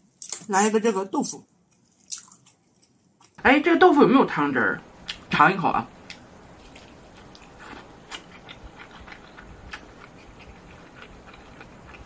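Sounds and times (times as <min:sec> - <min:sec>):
wet mouth clicks chewing: 0:06.1 - 0:12.0.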